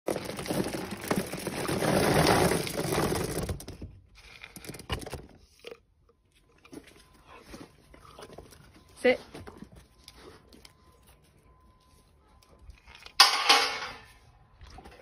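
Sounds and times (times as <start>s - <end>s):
plastic bag crinkling: 0.1s - 5.2s.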